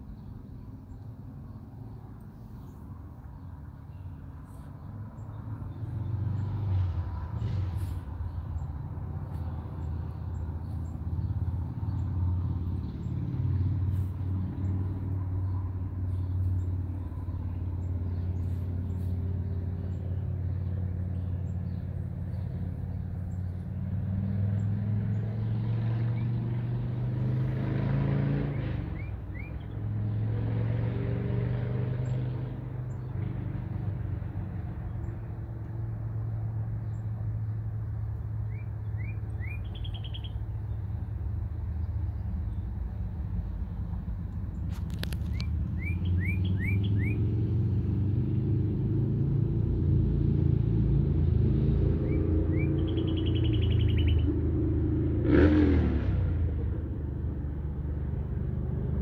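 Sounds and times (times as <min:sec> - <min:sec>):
traffic engine hum: 0:00.0 - 0:59.0
vehicle passing: 0:00.0 - 0:59.0
short bird chirps: 0:38.4 - 0:40.4, 0:45.2 - 0:47.2, 0:52.0 - 0:54.3.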